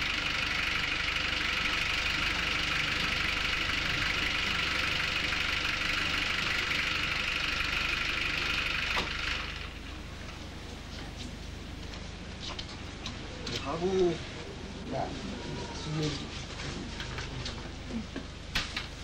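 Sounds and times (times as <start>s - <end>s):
suv engine idling: 0.0s - 12.3s.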